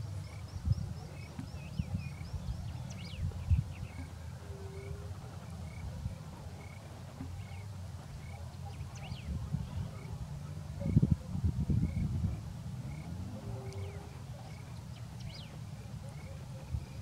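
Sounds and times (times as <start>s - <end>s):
chorus of toads calling: 0.2s - 11.1s.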